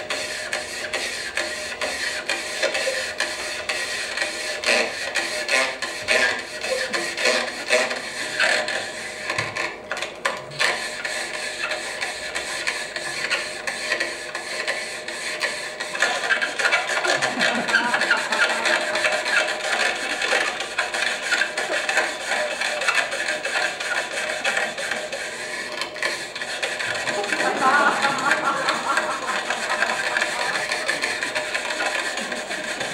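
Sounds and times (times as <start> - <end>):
rubber balloons squeaking: 16.2 - 20.5, 26.8 - 32.9.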